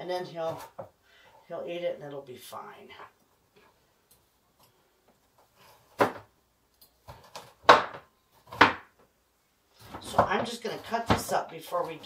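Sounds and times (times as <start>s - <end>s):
knife chopping on wooden board: 7.2s - 8.9s.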